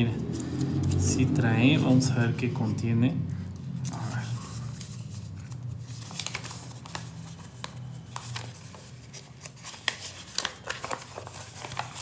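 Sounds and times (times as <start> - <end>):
paper rustling and crackling: 3.8 - 12.0.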